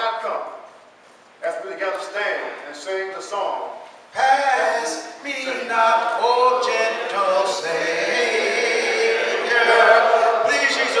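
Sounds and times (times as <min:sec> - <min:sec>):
congregation singing a hymn: 0:04.2 - 0:11.0.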